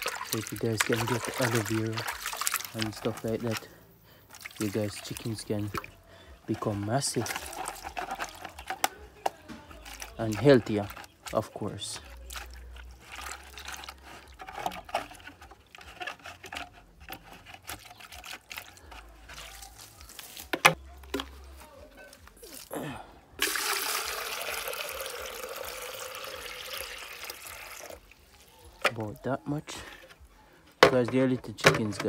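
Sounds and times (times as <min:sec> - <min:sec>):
water pouring and splashing: 0:00.0 - 0:08.9, 0:09.8 - 0:20.8, 0:23.4 - 0:29.6.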